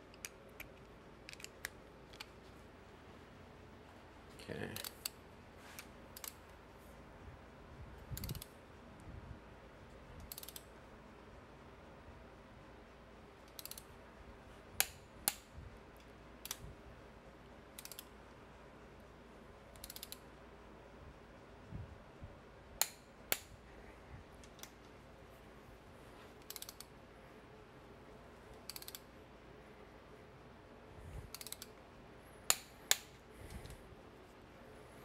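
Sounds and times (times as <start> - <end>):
sharp torque wrench clicks: 8.2 - 8.5, 10.2 - 10.7, 13.5 - 13.9, 17.8 - 18.1, 19.8 - 20.2, 26.4 - 26.9, 28.6 - 29.1, 31.3 - 31.7.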